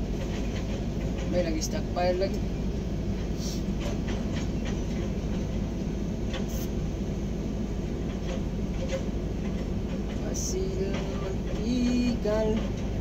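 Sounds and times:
diesel engine hum: 0.0s - 13.0s.

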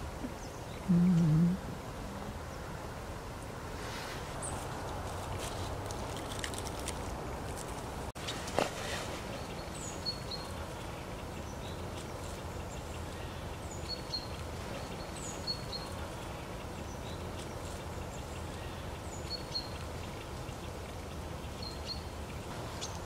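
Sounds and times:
small songbird call notes: 9.2s - 23.0s.

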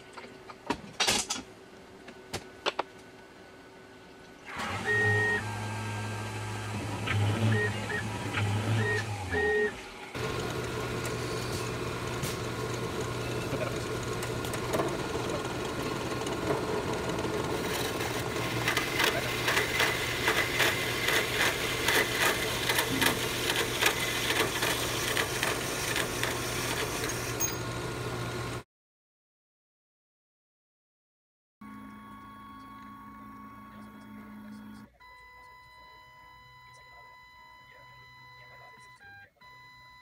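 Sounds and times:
bandsaw motor hum: 4.5s - 28.6s.

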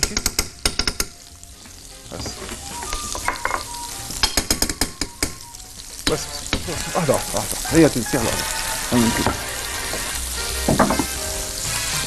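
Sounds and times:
butter sizzling in a frying pan: 0.1s - 12.0s
metal spoon tapping and scraping pan: 2.9s - 5.4s.

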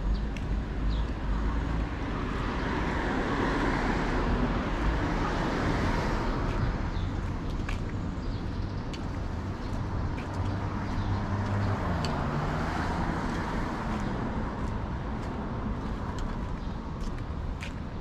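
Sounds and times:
low traffic rumble: 0.0s - 18.0s
road vehicle passing by: 9.3s - 17.2s.

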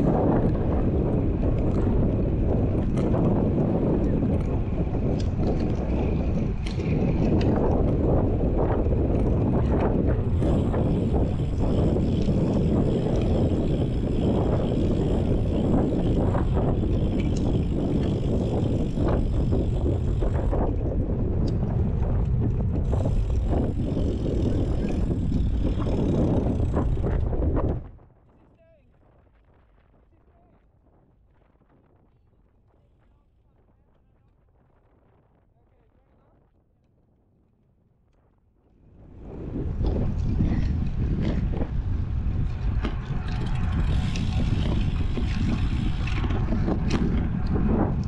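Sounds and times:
freewheel whirring: 0.0s - 28.0s, 39.1s - 48.0s
bike tyres rolling on tarmac: 0.0s - 48.0s
wind buffeting microphone: 0.0s - 48.0s.

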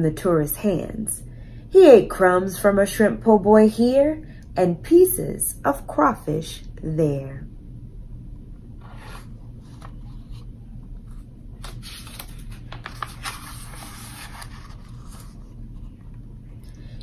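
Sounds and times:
low room hum: 0.0s - 17.0s
book page rustling: 8.8s - 16.2s.

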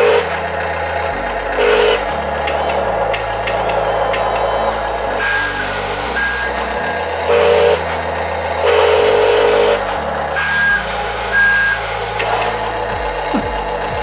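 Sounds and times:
simulated truck engine rumble: 0.0s - 14.0s
whir of drive motors: 0.0s - 14.0s
reversing alarm beeps: 1.6s - 7.9s, 10.4s - 12.6s.

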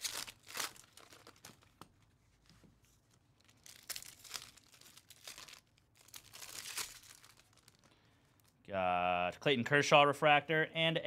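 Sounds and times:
foil and plastic wrapper crinkling: 0.0s - 1.8s, 3.4s - 8.6s.

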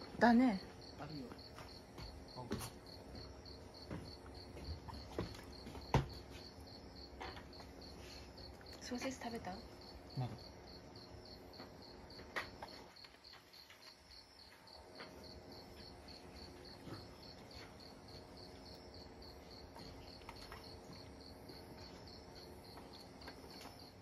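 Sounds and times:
insect chirping: 0.0s - 24.0s.

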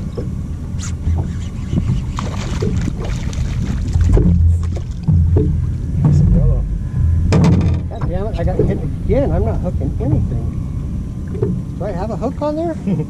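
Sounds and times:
water slapping against hull: 0.0s - 8.9s
wind rumbling on microphone: 0.0s - 13.0s.

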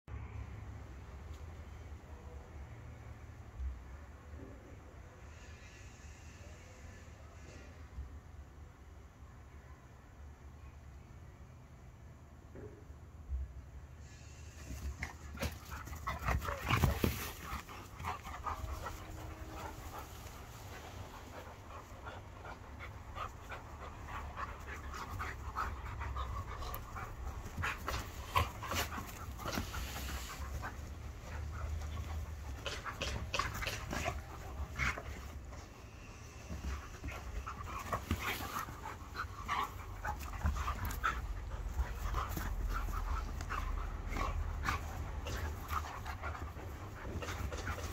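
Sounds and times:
dogs panting: 14.5s - 47.9s
dogs play-wrestling scuffles: 14.6s - 47.9s.

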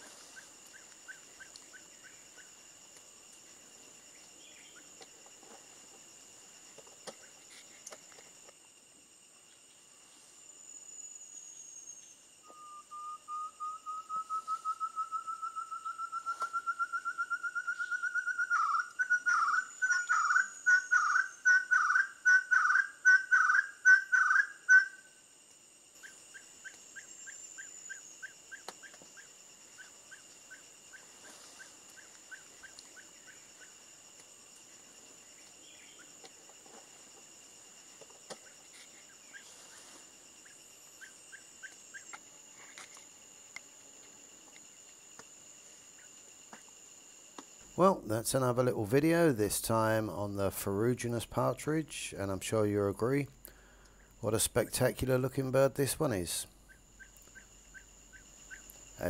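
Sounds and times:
partridge whistling song: 12.4s - 25.1s.

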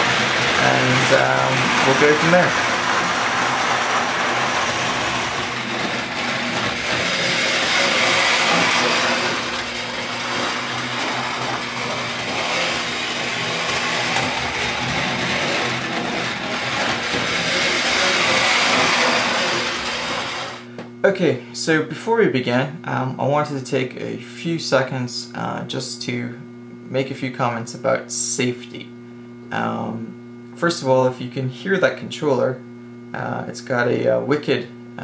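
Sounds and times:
model train motor whirring: 0.0s - 20.7s
electrical hum: 0.0s - 35.0s.

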